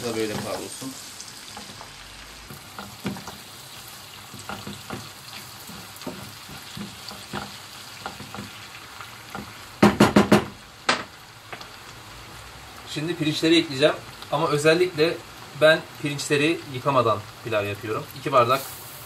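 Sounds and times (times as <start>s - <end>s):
food sizzling in a frying pan: 0.0s - 19.0s
loud knocks: 9.8s - 11.1s.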